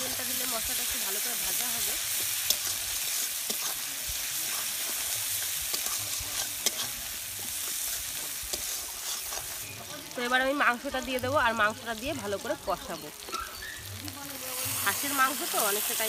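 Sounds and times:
food sizzling in oil: 0.0 - 16.0
metal spatula scraping pan: 1.5 - 10.2.

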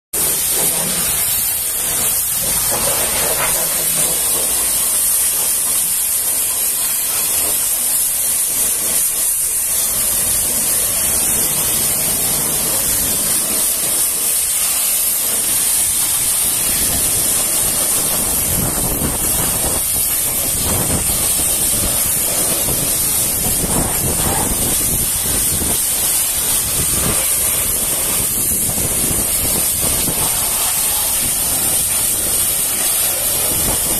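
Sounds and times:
pressure washer spraying: 0.2 - 33.9.

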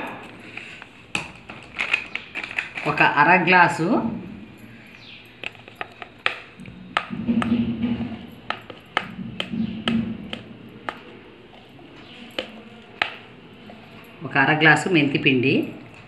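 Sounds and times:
metal tumbler clinking: 4.5 - 16.0.

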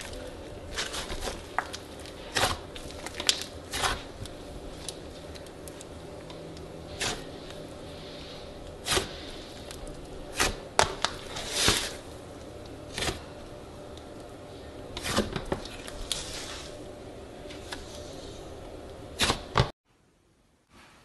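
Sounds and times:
slime popping and crackling: 0.0 - 7.6.

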